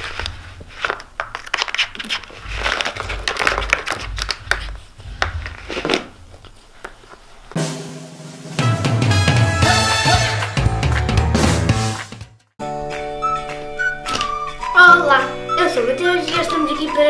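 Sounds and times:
cardboard crinkling and scraping: 0.0 - 7.6
music: 7.6 - 17.0.

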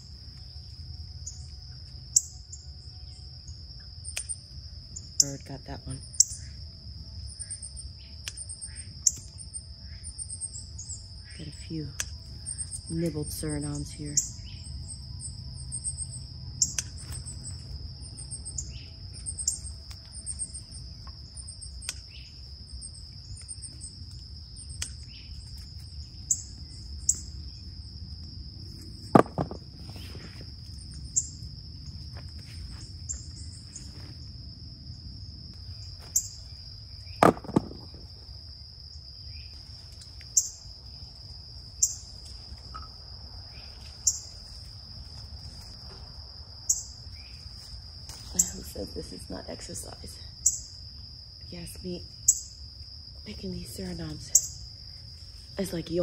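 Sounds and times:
insects trilling: 0.0 - 56.0
loud knocks: 29.1 - 29.6, 37.2 - 38.0.

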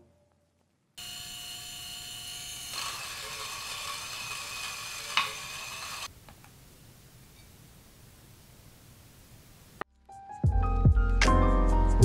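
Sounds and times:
coffee grinder whining: 1.0 - 6.1.

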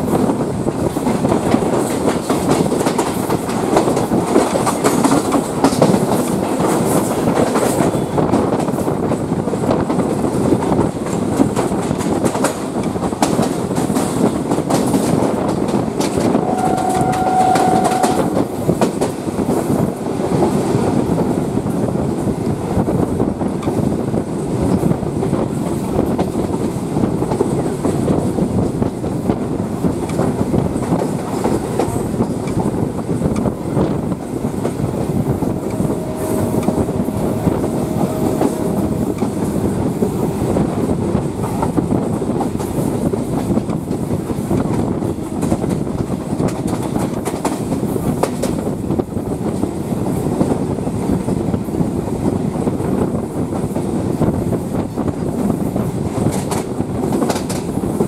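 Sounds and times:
train rumbling: 0.0 - 58.0
short steady tone: 35.4 - 39.3.

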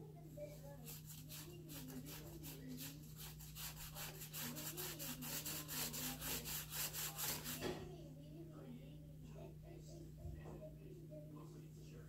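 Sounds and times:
wooden stick scraping paint on paper: 0.6 - 7.8.

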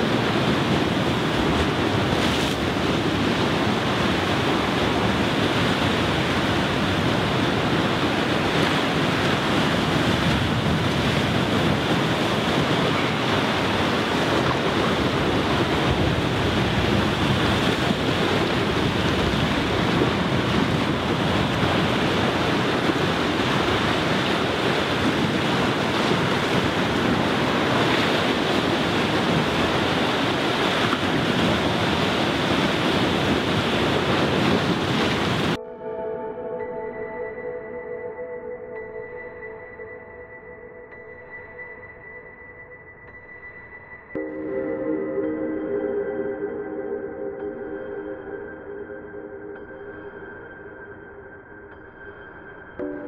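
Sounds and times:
sea surf breaking on rocky shore: 0.0 - 35.6.

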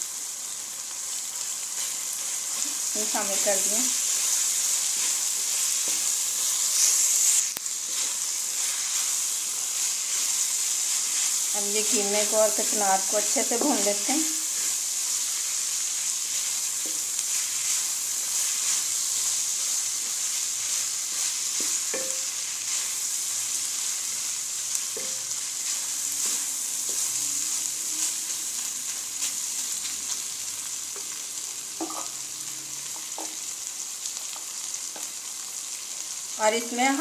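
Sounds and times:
food sizzling in hot oil: 0.0 - 37.0
wooden spoon knocking pan: 21.6 - 22.3, 31.8 - 32.1.

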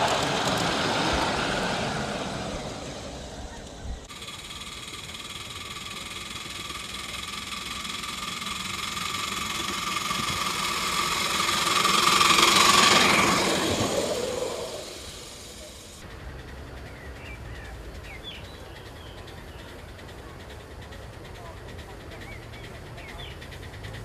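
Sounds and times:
model train rolling on track: 0.0 - 24.0
steady ringing tone: 4.1 - 16.0.

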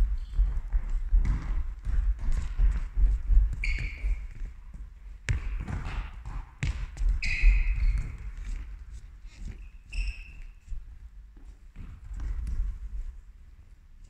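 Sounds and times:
sneakers squeaking on floor: 0.0 - 11.0
volleyballs bouncing on hall floor: 0.0 - 13.1.

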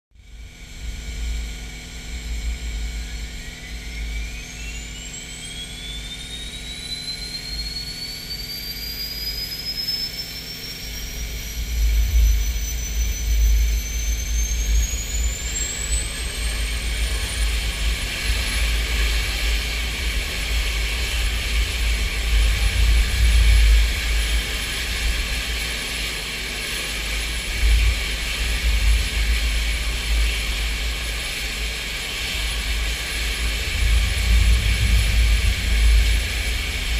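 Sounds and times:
jet engine whine starting: 0.2 - 36.9.

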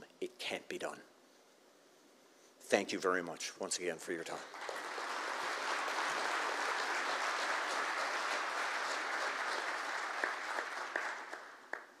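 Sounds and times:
audience applauding: 4.4 - 12.0.

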